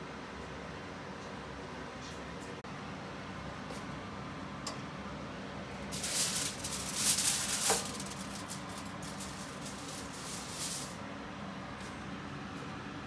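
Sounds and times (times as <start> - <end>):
aluminium foil crinkling: 5.9 - 11.0.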